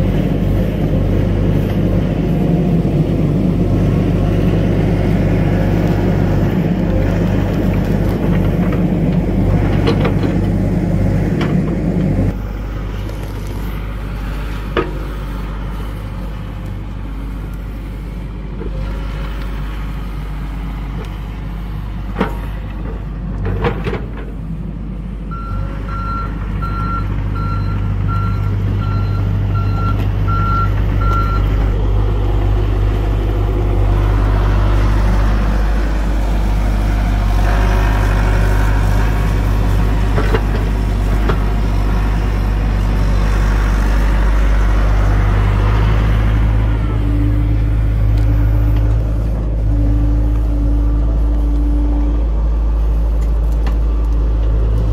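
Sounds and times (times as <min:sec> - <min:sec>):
excavator diesel engine running: 0:00.0 - 0:54.9.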